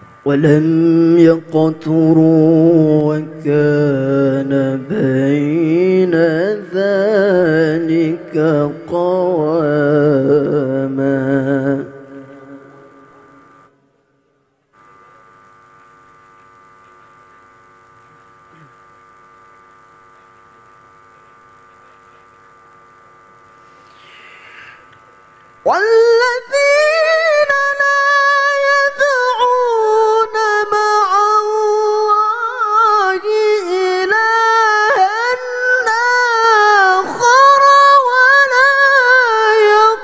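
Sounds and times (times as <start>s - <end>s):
electrical mains hum: 0.0s - 40.0s
man reciting melodically into microphone: 0.3s - 13.0s, 25.6s - 40.0s.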